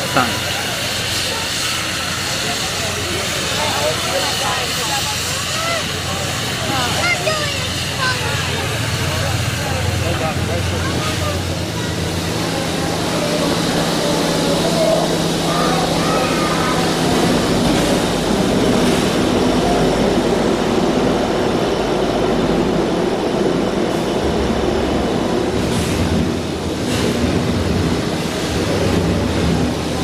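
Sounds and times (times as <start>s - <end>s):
steam locomotive hissing steam: 0.0s - 20.6s.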